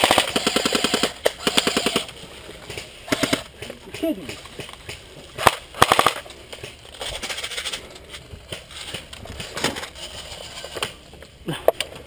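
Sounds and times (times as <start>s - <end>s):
airsoft gunfire burst: 0.0s - 2.1s, 3.1s - 3.5s, 5.4s - 6.2s.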